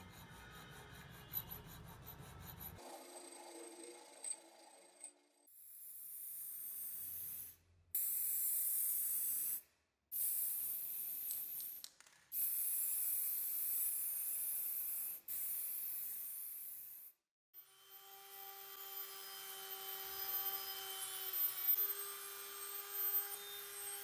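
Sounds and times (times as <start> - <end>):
aerosol spray can spraying: 8.0 - 16.9.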